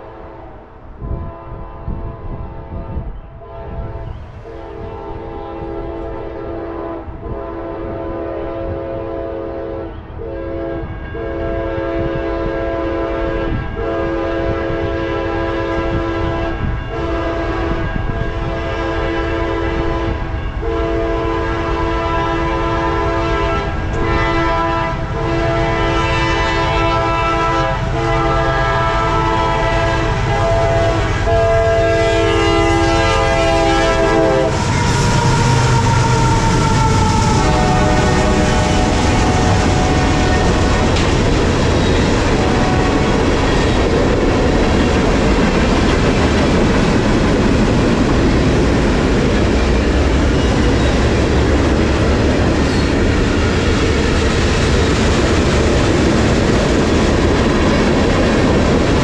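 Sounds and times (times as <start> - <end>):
train air horn blasts: 0.0 - 44.0
locomotives and wheels rumbling: 0.0 - 59.0.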